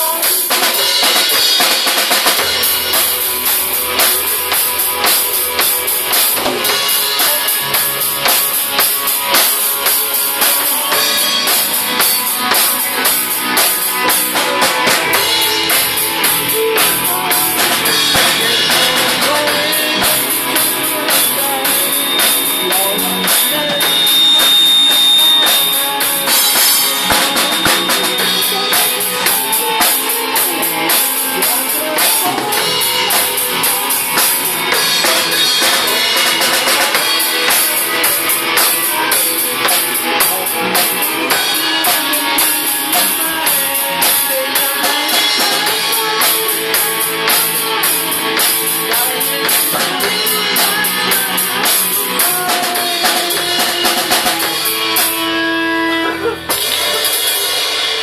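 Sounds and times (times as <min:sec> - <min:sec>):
drum kit with cymbals: 0:00.0 - 0:58.0
electric guitar: 0:00.0 - 0:58.0
harmonica: 0:50.8 - 0:57.0.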